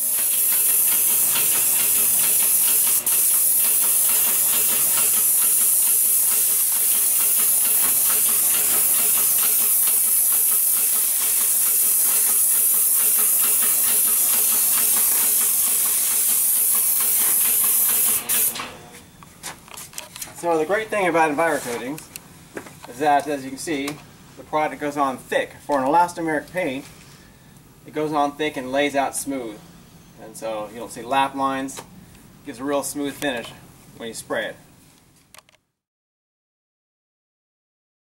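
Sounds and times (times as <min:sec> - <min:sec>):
paint spray gun hissing: 0:00.0 - 0:18.6.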